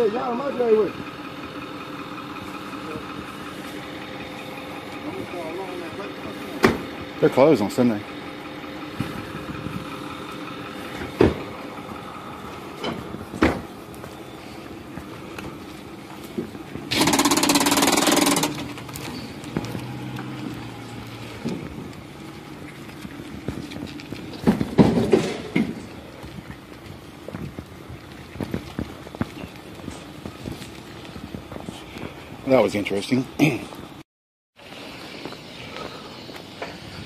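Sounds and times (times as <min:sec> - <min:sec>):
truck engine idling: 0:00.0 - 0:34.0, 0:34.6 - 0:37.0.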